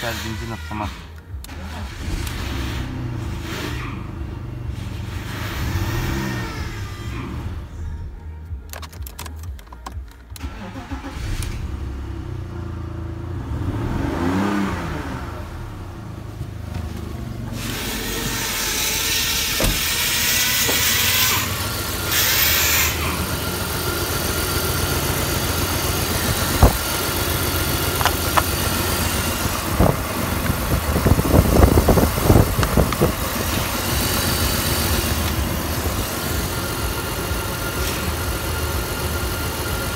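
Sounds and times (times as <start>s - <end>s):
sharp clicks: 8.6s - 10.5s
car engine idling: 15.0s - 39.9s.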